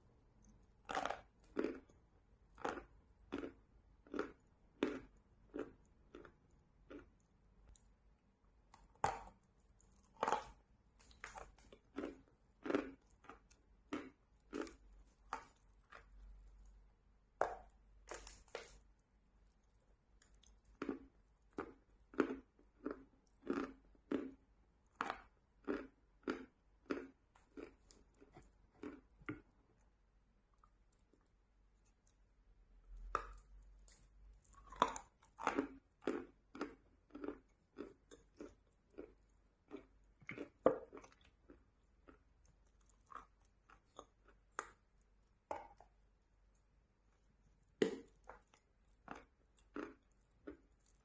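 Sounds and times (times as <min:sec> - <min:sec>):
chewing crunchy chalk: 0:00.4 - 0:01.9, 0:08.8 - 0:16.7, 0:17.6 - 0:18.8, 0:33.0 - 0:44.8.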